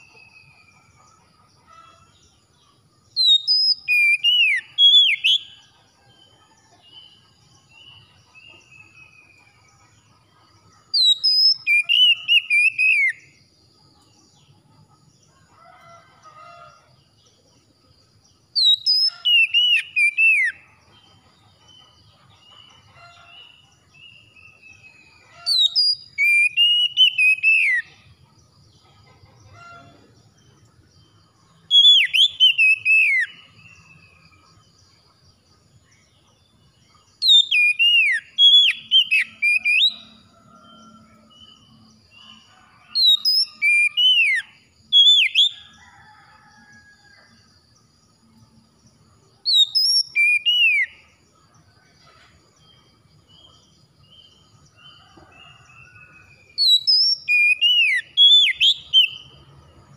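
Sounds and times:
bird singing whistled phrases: 0:03.2 - 0:05.5, 0:11.0 - 0:13.2, 0:18.6 - 0:20.6, 0:25.5 - 0:27.9, 0:31.7 - 0:33.4, 0:37.2 - 0:40.1, 0:49.5 - 0:51.0, 0:56.2 - 0:59.2.

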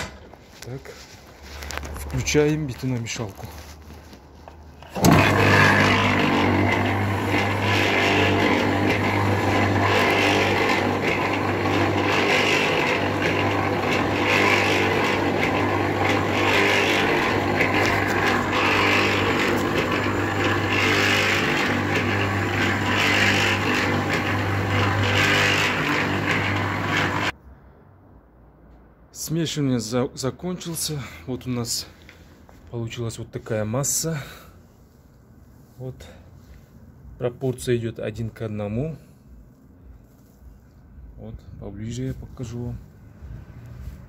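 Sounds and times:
mixer motor hum: 0:04.8 - 0:27.3.

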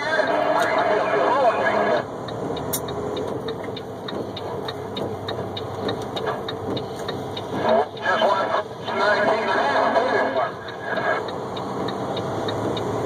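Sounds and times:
truck engine and road noise: 0:00.0 - 0:13.0
quick light ticks: 0:02.2 - 0:08.1, 0:10.6 - 0:13.0.

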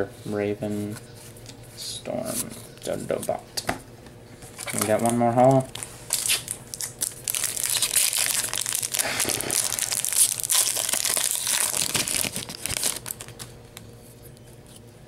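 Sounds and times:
foil wrapper crinkling: 0:04.5 - 0:13.8.

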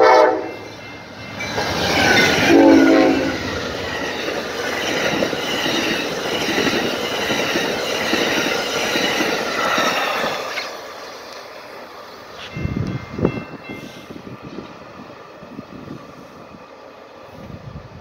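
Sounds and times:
train wheels clattering on rails: 0:00.5 - 0:14.9.

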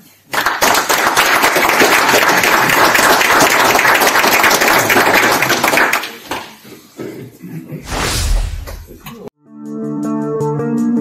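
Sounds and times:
audience applauding: 0:00.3 - 0:06.3.

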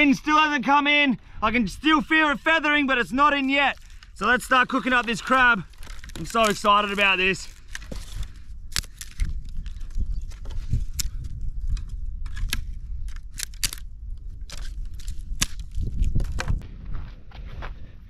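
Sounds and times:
dry branches snapping: 0:04.7 - 0:16.6.

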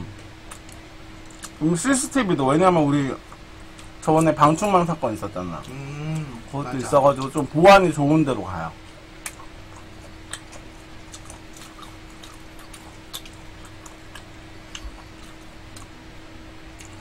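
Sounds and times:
steady low hum: 0:00.0 - 0:17.0
eating clicks and smacks: 0:00.1 - 0:01.6, 0:03.3 - 0:04.9, 0:07.1 - 0:07.5, 0:08.9 - 0:16.0, 0:16.7 - 0:17.0.

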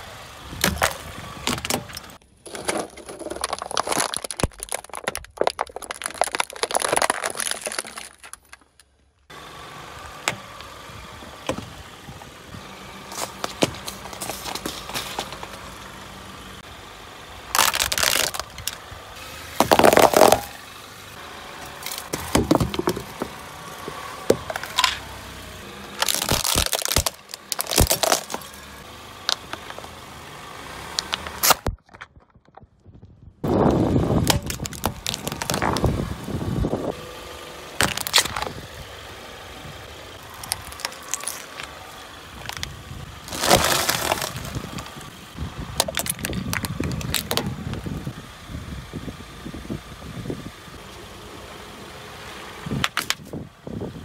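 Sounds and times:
car engine running low: 0:00.0 - 0:54.0
tyre crushing plastic objects: 0:00.6 - 0:08.9, 0:13.1 - 0:15.6, 0:17.5 - 0:18.8, 0:19.6 - 0:20.5, 0:21.8 - 0:23.4, 0:26.0 - 0:29.9, 0:34.1 - 0:35.9, 0:37.8 - 0:38.6, 0:40.3 - 0:45.0, 0:45.8 - 0:47.8.

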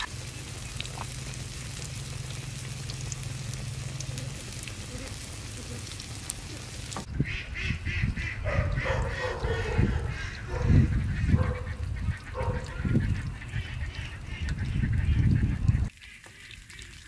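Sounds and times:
poultry honking: 0:07.2 - 0:15.2.

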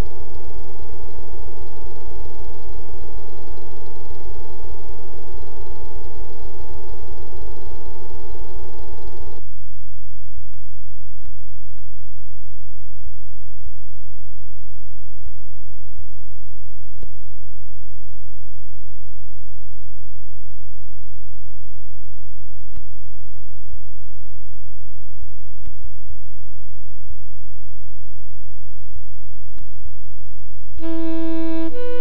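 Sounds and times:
low electrical hum: 0:00.0 - 0:32.0.

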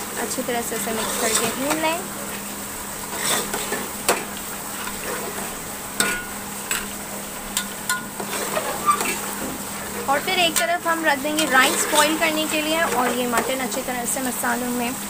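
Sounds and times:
food sizzling in a pot: 0:00.0 - 0:15.0
ladle stirring and scraping: 0:00.6 - 0:13.8
ladle clacking against pot: 0:06.0 - 0:09.2.

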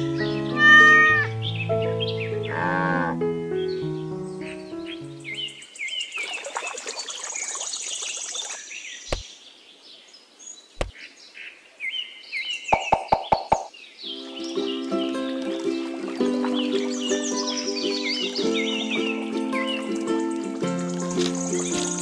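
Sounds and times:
birds chirping: 0:00.0 - 0:22.0
backing music: 0:14.2 - 0:22.0.

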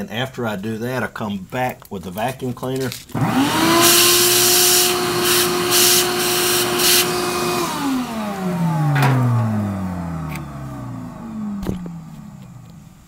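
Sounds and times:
shop vac motor whine: 0:03.1 - 0:13.0
vacuum suction hiss: 0:03.7 - 0:09.9.

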